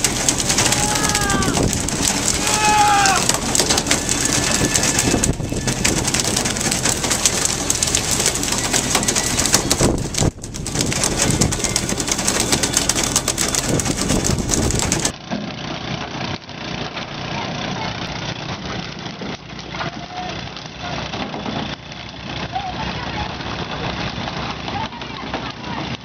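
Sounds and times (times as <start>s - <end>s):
water splashing along boat hull: 0.0s - 15.2s.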